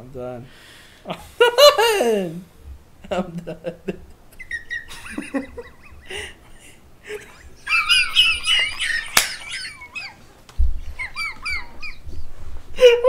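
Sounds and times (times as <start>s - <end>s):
men laughing hard: 3.1s - 12.0s.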